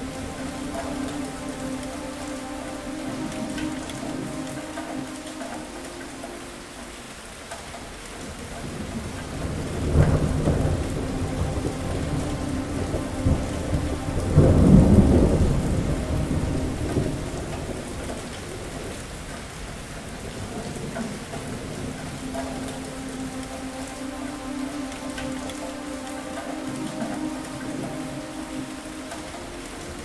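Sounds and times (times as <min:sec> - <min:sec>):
heavy rain: 0:00.0 - 0:30.0
thunder rolling: 0:08.6 - 0:19.1.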